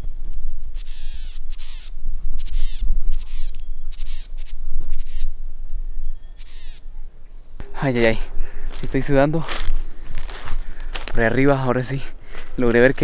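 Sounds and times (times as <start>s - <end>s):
bird cawing: 0.7s - 5.4s, 6.0s - 7.0s, 7.6s - 8.9s, 9.6s - 11.1s.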